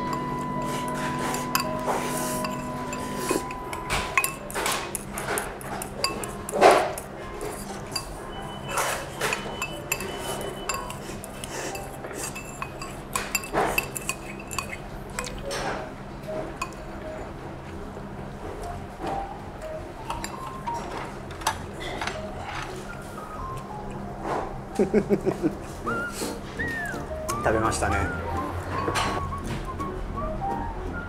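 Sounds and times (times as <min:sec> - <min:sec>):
chopsticks clinking on porcelain bowls: 0:00.0 - 0:15.4.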